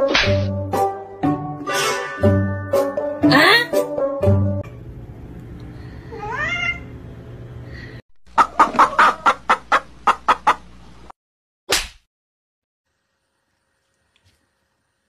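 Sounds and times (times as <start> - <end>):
chickens clucking: 8.3 - 10.8.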